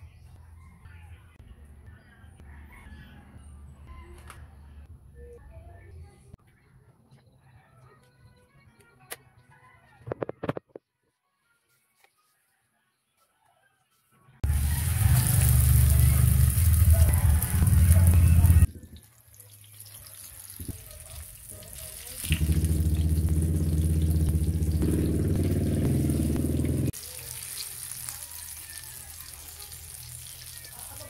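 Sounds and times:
oil sizzling in a frying pan: 14.4 - 24.8, 26.8 - 31.0
loud low hum: 22.3 - 26.9.

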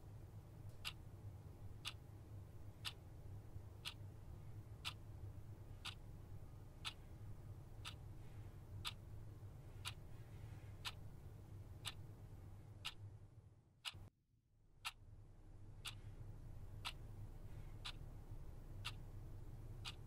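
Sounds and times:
faint low hum: 0.0 - 20.0
clock ticking: 0.7 - 1.0, 1.7 - 2.1, 2.7 - 3.0, 3.7 - 4.1, 4.7 - 5.1, 5.7 - 7.1, 7.8 - 8.1, 8.8 - 9.1, 9.7 - 10.1, 10.8 - 12.1, 12.8 - 13.1, 13.8 - 14.1, 15.8 - 20.0.

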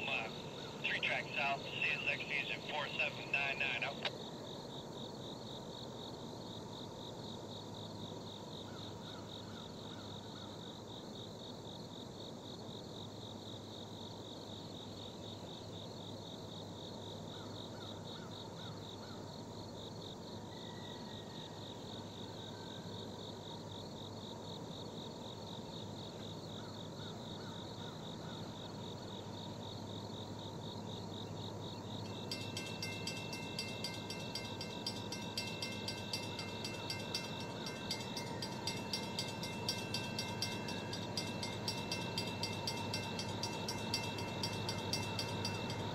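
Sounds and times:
distant freight train rumble: 0.0 - 5.7, 27.6 - 45.9
pulsing insect chorus: 0.0 - 45.9
high ringing tones: 31.8 - 45.9
train wheels clicking: 32.0 - 45.9.

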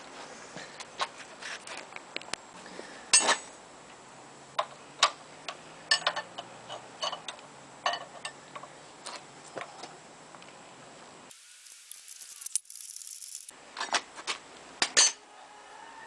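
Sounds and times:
metal tool scraping: 11.3 - 13.5
spanner and ratchet clicking: 11.3 - 13.5.

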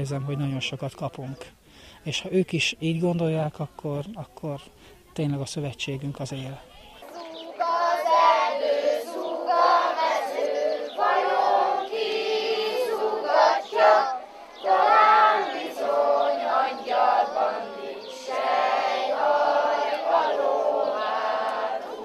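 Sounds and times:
children singing: 7.0 - 22.0.

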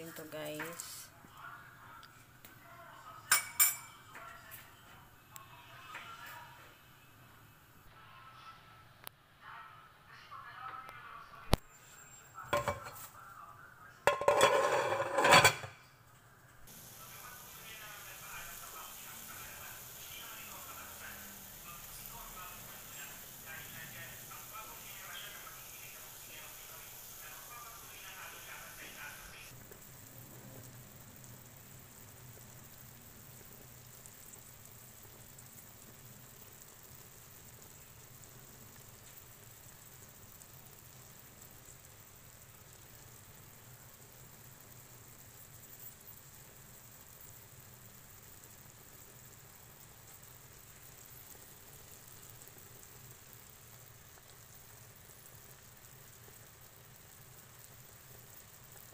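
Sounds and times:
pot simmering and bubbling: 11.6 - 13.4, 14.0 - 58.9
metal lid clanking on pot: 12.5 - 13.0, 14.1 - 15.8
metal lid rattling on pot: 12.6 - 13.0, 14.1 - 15.8.

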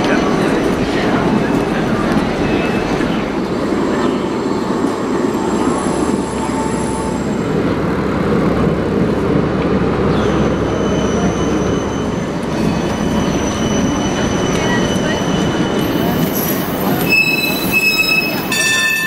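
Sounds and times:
trams rumbling past: 0.0 - 19.0
wheels squealing on rails: 9.9 - 19.0.

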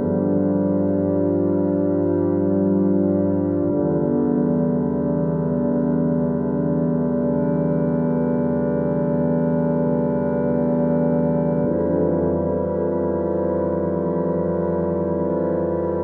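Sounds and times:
pump organ drone chord: 0.0 - 16.0.

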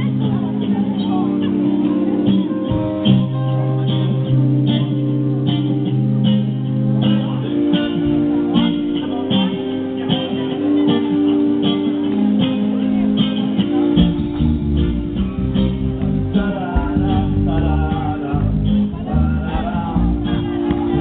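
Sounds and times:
electric guitars: 0.0 - 21.0
keyboard notes: 0.0 - 21.0
drum kit beat: 14.0 - 21.0.

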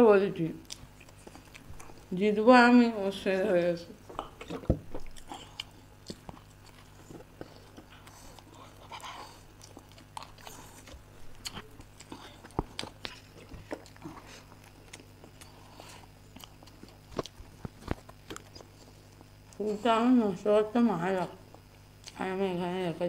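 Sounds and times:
low steady hum: 0.0 - 23.0
people chewing cake: 0.6 - 2.6, 3.2 - 22.5.

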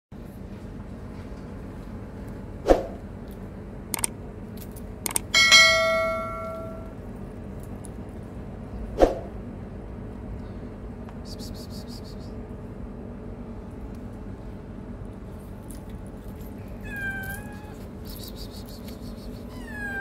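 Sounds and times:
mouse clicks: 5.1 - 5.3
bright bell chime: 5.4 - 6.9.

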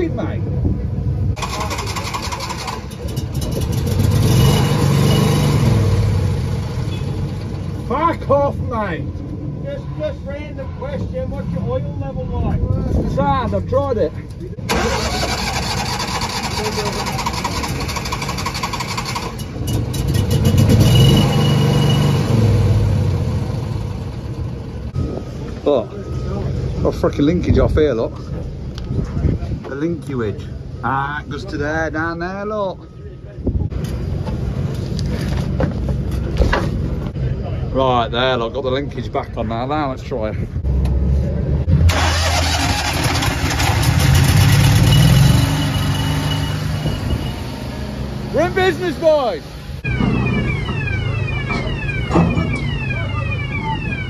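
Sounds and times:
engine starter cranking: 1.4 - 4.0, 14.6 - 20.5, 41.9 - 45.0.

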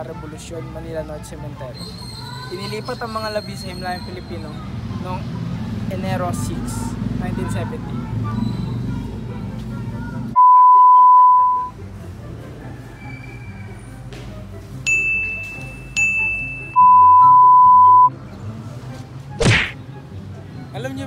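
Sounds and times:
soft background music: 0.0 - 10.4, 11.3 - 21.0
test tone beep: 10.4 - 11.7, 16.5 - 18.1
bright dings: 14.9 - 18.1.

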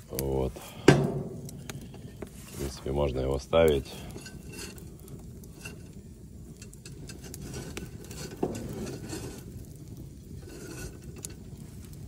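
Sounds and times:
low rumble: 0.0 - 6.1
wood fire crackling: 0.0 - 12.0.

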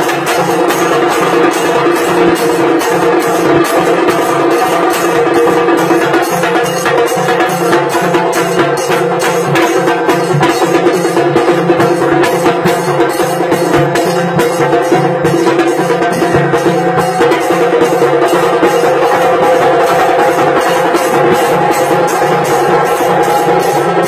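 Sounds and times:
tassa drums playing fast: 0.0 - 24.0.

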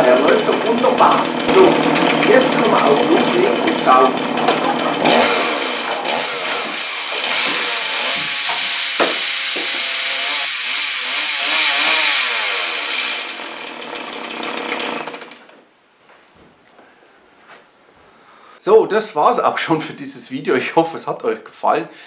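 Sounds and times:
vacuum cleaner motor revving: 0.0 - 15.3.

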